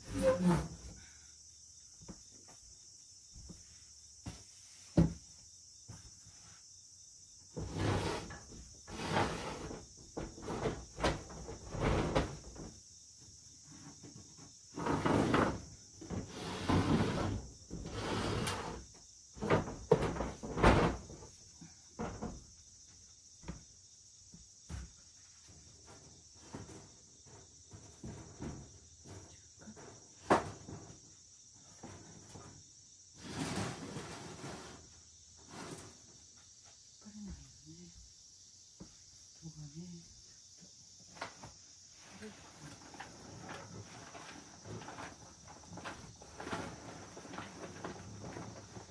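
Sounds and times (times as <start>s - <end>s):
panels knocking and clacking: 19.4s - 21.3s.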